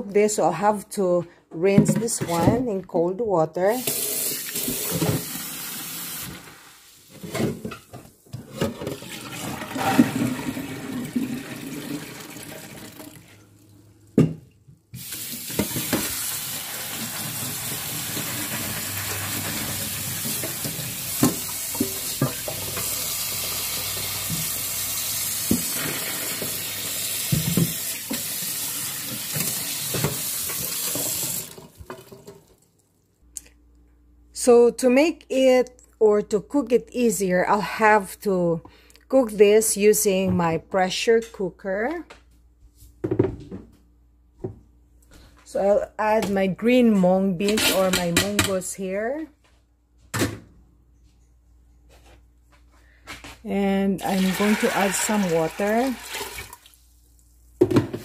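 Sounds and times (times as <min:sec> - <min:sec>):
tap water running into strainer: 0:03.8 - 0:07.0, 0:08.9 - 0:13.3, 0:15.0 - 0:32.3, 0:54.0 - 0:56.8.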